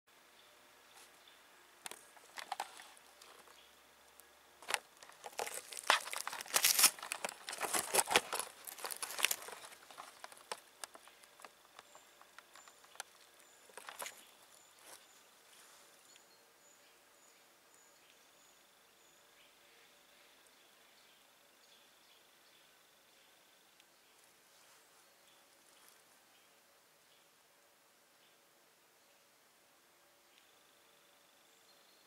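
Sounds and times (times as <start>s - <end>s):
dry leaves crackling: 1.9s - 3.6s, 4.6s - 15.9s.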